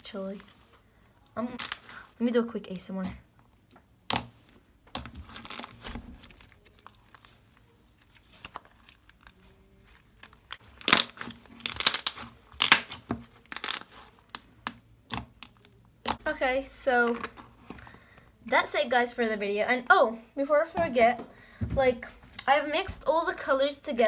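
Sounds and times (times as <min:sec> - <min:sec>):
slime squishing with sticky pops: 0:03.0 - 0:16.2.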